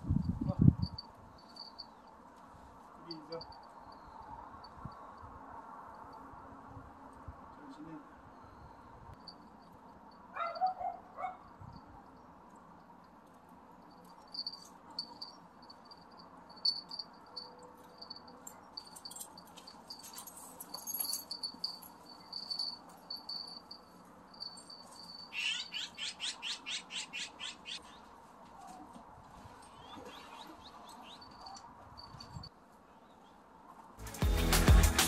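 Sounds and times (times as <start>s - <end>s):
small birds chirping: 25.2s - 28.2s.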